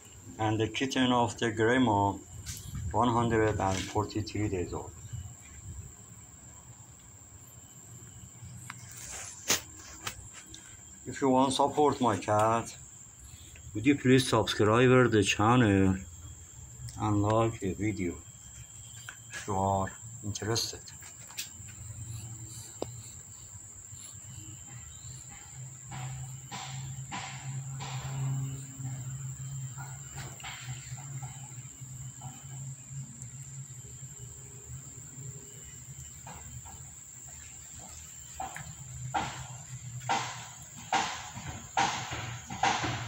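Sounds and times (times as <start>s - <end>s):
high-pitched insect buzz: 0.0s - 43.0s
soft rustles: 8.7s - 10.5s.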